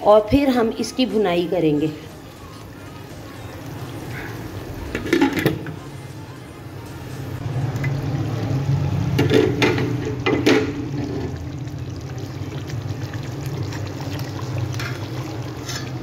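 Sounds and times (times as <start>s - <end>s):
pot lid clattering: 4.9s - 5.7s, 9.2s - 11.3s
curry bubbling in a pot: 7.4s - 16.0s.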